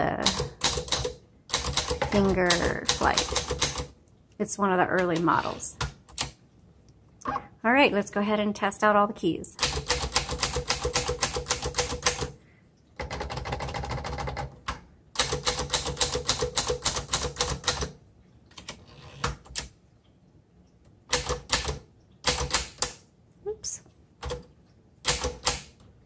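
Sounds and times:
typewriter keys clacking: 0:00.2 - 0:03.9, 0:09.6 - 0:12.3, 0:15.2 - 0:17.9.

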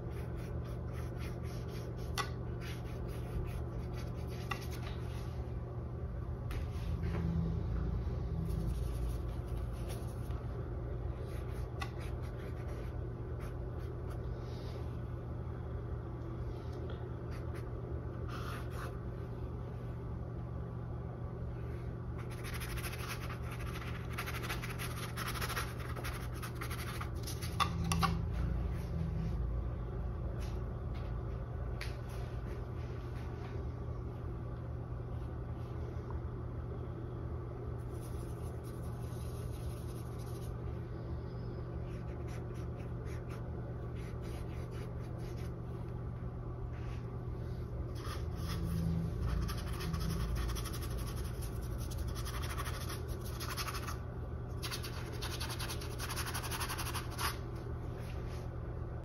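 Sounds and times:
steady low hum: 0:00.0 - 0:59.0.

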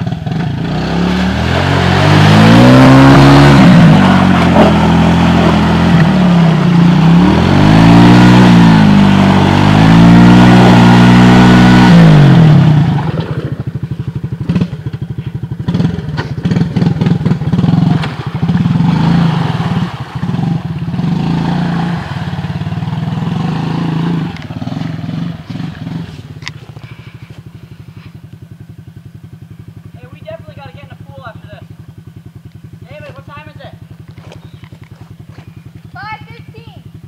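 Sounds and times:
quad bike engine revving: 0:00.0 - 0:28.7, 0:29.9 - 0:37.0
clatter in mud: 0:34.0 - 0:35.6.

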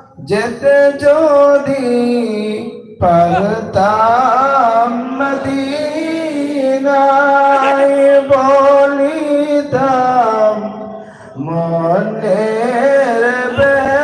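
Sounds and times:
man singing into a microphone: 0:00.0 - 0:14.0.

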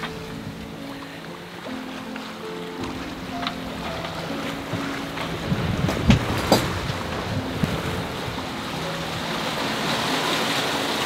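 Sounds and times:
sea noise: 0:00.0 - 0:11.0
sharp knocks: 0:02.8 - 0:07.8
wind on microphone: 0:02.8 - 0:11.0.

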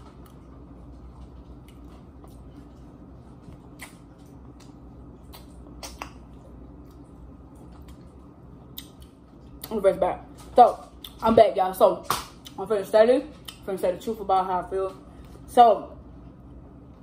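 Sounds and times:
wet eating smacks: 0:00.0 - 0:09.7.

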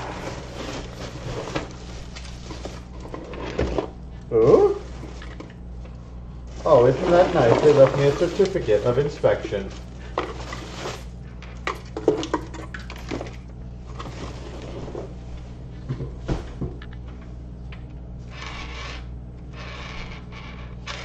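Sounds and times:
packing foam rustling: 0:00.0 - 0:03.0, 0:06.4 - 0:11.2
cardboard box scraping: 0:00.0 - 0:03.9, 0:06.5 - 0:11.2
steady low hum: 0:00.0 - 0:21.0.

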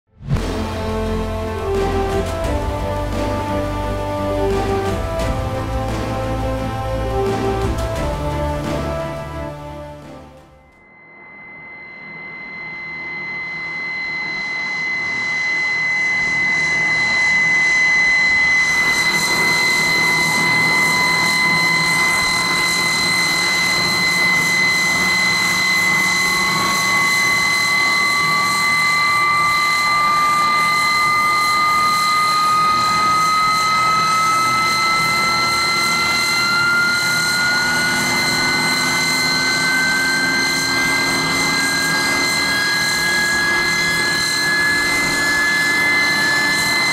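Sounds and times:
rising engine tone: 0:00.2 - 0:46.9
turboprop engines whining: 0:00.2 - 0:46.9.

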